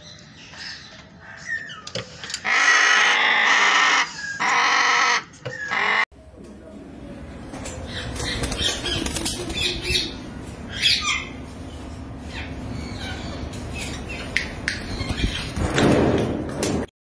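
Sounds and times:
parrots squawking: 0:01.1 - 0:06.0, 0:07.9 - 0:11.4
wings flapping: 0:08.1 - 0:09.8.

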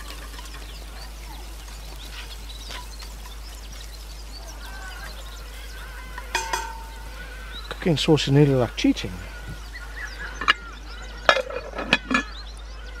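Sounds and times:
onions sizzling: 0:00.0 - 0:10.0
birds calling: 0:00.0 - 0:13.0.

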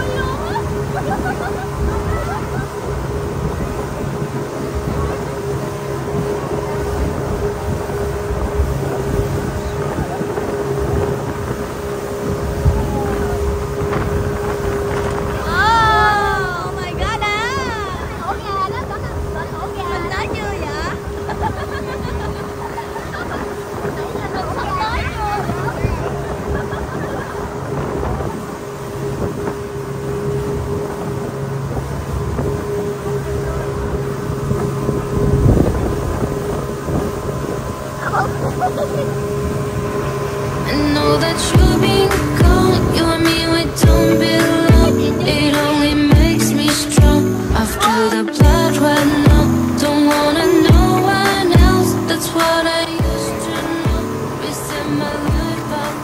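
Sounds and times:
speedboat engine drone: 0:00.0 - 0:56.0
water rushing past hull: 0:00.0 - 0:56.0
wind buffeting microphone: 0:00.0 - 0:56.0
hull thump: 0:41.4 - 0:45.0, 0:48.4 - 0:49.6.

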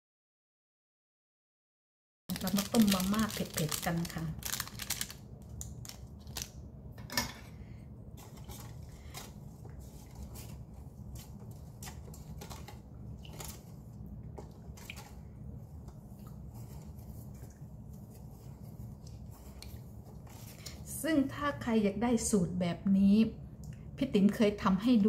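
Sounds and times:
steady low hum: 0:02.3 - 0:25.0.

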